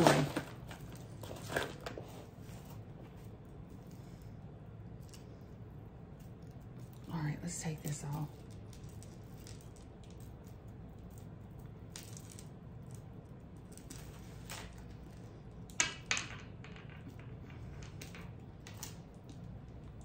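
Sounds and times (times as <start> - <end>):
low room hum: 0.0 - 20.0
jewelry clicking and clinking: 6.2 - 20.0.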